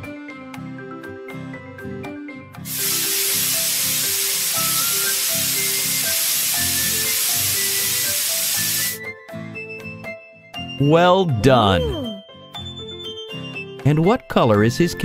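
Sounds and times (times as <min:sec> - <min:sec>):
light background music: 0:00.0 - 0:15.0
hiss of spraying paint: 0:02.6 - 0:09.0.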